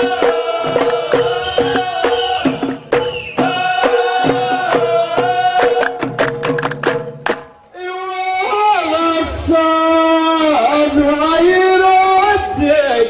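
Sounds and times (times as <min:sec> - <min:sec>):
men chanting in chorus: 0:00.0 - 0:02.8, 0:03.4 - 0:06.2
man singing into microphone: 0:03.4 - 0:06.0, 0:07.7 - 0:13.0.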